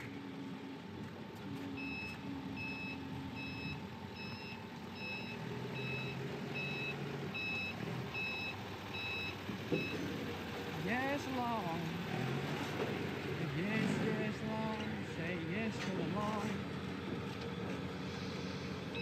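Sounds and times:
forklift engine hum: 0:00.0 - 0:19.0
reverse alarm beeping: 0:01.8 - 0:10.0.

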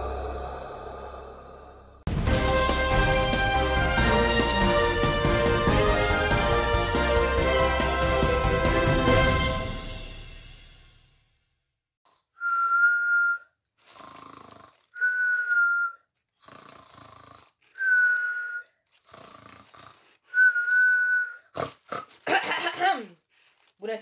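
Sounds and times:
cartoon snoring with whistle: 0:12.9 - 0:22.2.

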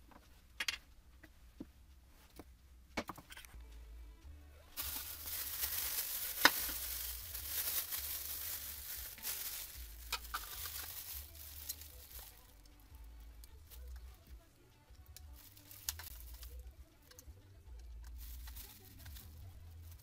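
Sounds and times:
plastic wrapping crinkling: 0:04.8 - 0:12.8, 0:15.1 - 0:17.2, 0:17.8 - 0:20.0.

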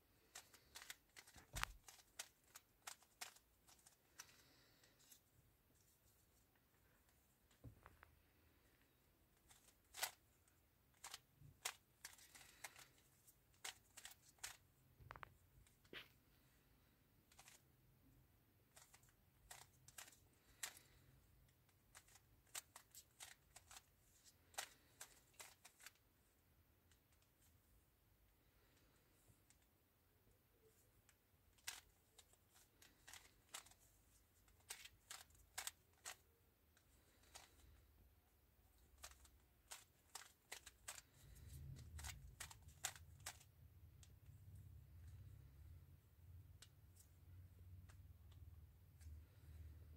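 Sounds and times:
puzzle cube plastic clicks: 0:00.2 - 0:05.2, 0:09.4 - 0:10.3, 0:10.9 - 0:15.8, 0:17.2 - 0:17.6, 0:18.7 - 0:26.0, 0:31.5 - 0:36.3, 0:37.0 - 0:37.8, 0:38.8 - 0:44.4.

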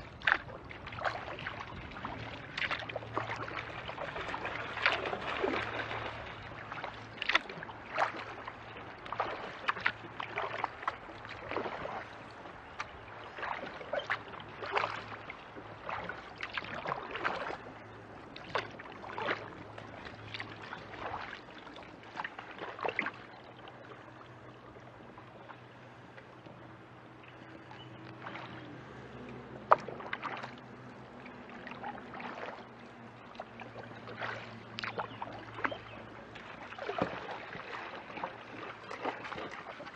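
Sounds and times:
kayak paddle splashing: 0:00.0 - 0:39.9.

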